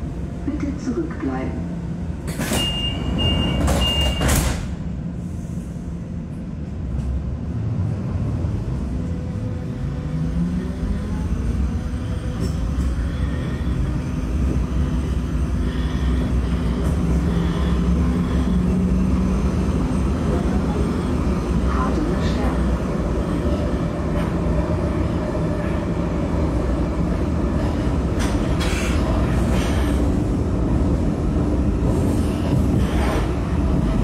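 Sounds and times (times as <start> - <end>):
train doors shutting: 2.2 - 5.0, 26.8 - 34.0
door warning tone beeps: 2.6 - 4.5.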